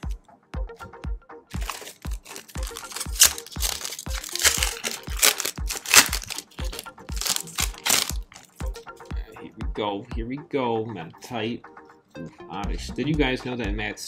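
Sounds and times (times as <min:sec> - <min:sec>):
background music with steady beat: 0:00.0 - 0:14.0
foil wrapper crinkling and tearing: 0:01.5 - 0:08.8.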